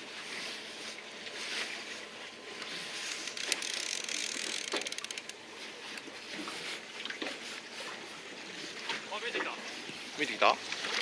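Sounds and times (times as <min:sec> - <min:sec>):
fishing reel whirring and clicking: 0:02.6 - 0:06.0.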